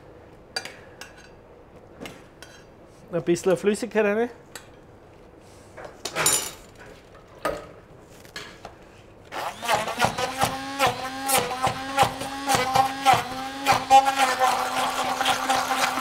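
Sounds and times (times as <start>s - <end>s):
immersion blender running: 9.3s - 16.0s.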